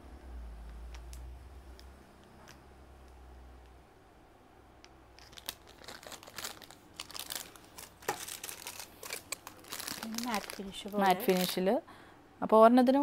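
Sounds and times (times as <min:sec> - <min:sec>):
wrapping crinkling and rustling: 0:05.2 - 0:11.8.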